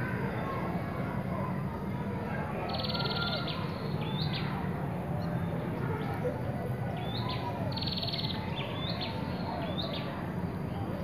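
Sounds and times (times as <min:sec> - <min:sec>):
birds calling with trills and chirps: 0:02.6 - 0:11.0.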